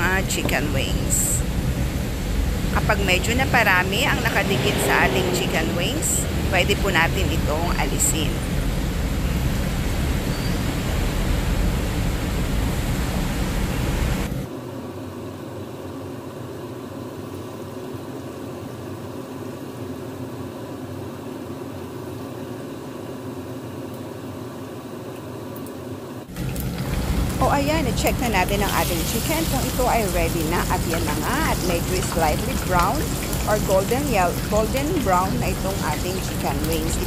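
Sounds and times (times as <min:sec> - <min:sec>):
chicken wings sizzling in oil: 0:26.3 - 0:37.0.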